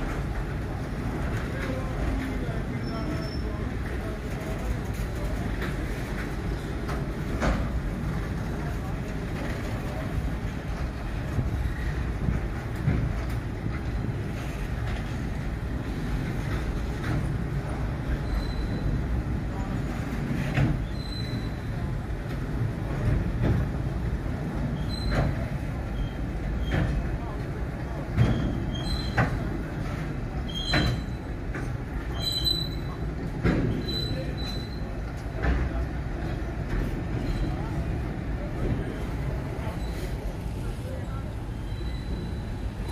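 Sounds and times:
train clanks: 0.0 - 42.9
train wheels rumbling on rails: 0.0 - 42.9
high wheel squeals: 18.1 - 19.0, 20.8 - 21.7, 32.1 - 33.0, 41.5 - 42.9.

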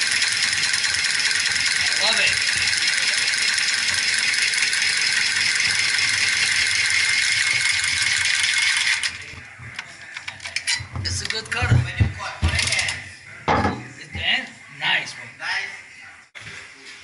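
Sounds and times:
pipe cutter whirring: 0.0 - 9.4.

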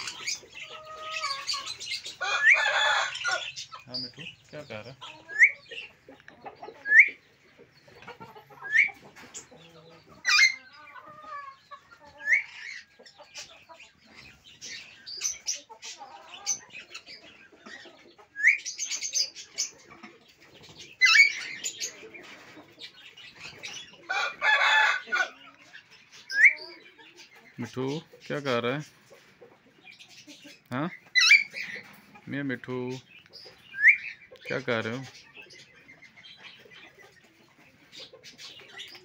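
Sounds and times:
parakeets screeching squawks: 0.0 - 4.4, 10.2 - 13.5, 20.8 - 22.0, 31.1 - 31.9
parakeets chirping: 0.0 - 39.0.

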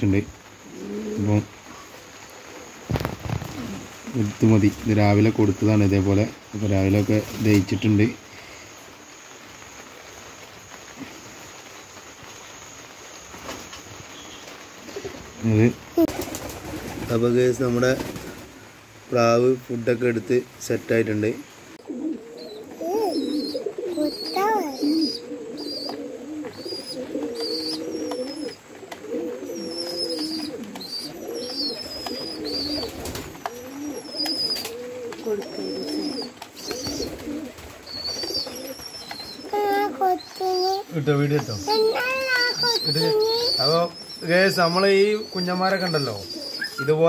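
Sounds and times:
pigeons cooing: 0.5 - 4.4, 21.2 - 47.0.

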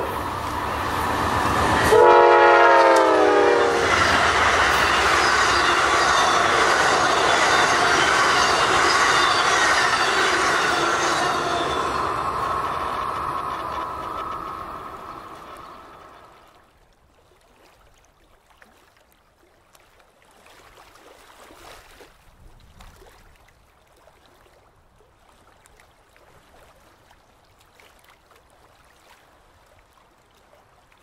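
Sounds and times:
water lapping and gurgling: 11.8 - 31.0
small splashes: 16.3 - 31.0.

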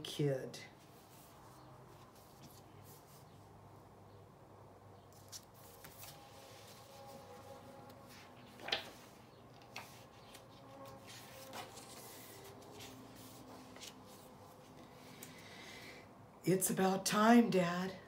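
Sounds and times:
paper pages rustling: 1.0 - 3.2, 5.1 - 14.6.

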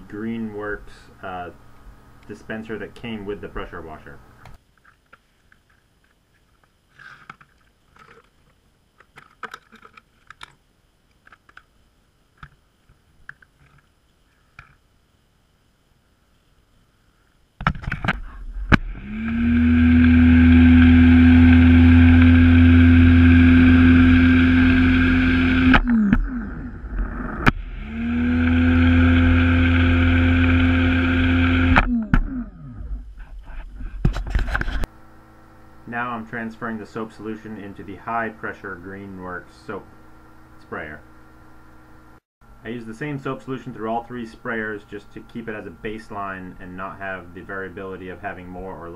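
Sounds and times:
pressure washer motor and pump: 18.7 - 31.9.

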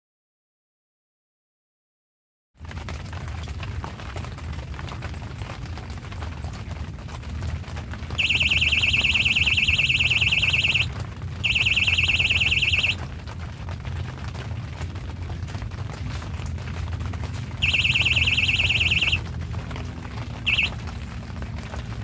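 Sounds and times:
bite alarm high beeps: 8.2 - 13.0, 17.6 - 19.2, 20.5 - 20.8.

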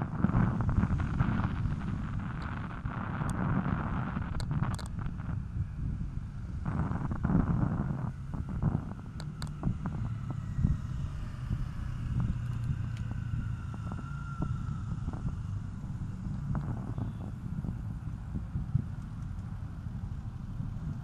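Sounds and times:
bicycle tyres on road: 0.0 - 21.0
wind rumble on microphone: 0.0 - 21.0
small clicks and rattles: 0.3 - 5.2, 6.7 - 10.4, 12.2 - 14.0.

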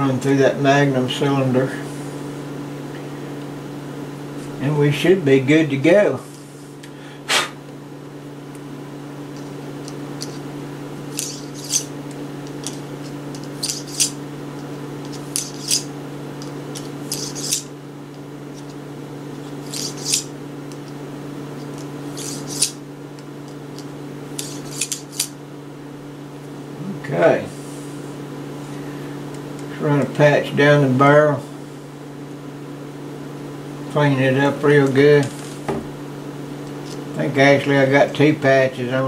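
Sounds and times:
steady low hum: 0.0 - 39.0
cleaning rod scraping through cylinder: 11.1 - 11.9, 17.1 - 17.7, 19.5 - 20.3, 22.1 - 22.8.

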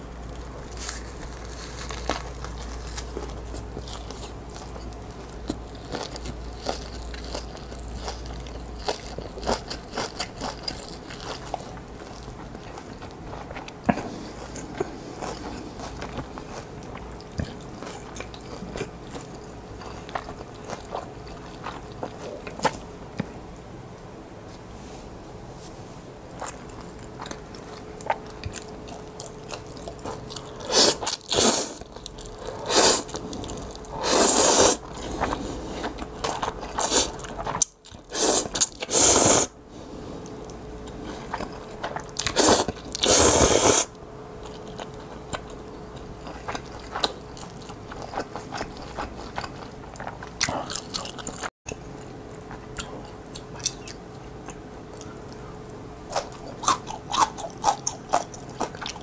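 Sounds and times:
slurping noodles: 32.4 - 35.9, 38.1 - 39.5, 42.3 - 43.9
wet chewing and smacking: 44.4 - 59.0.

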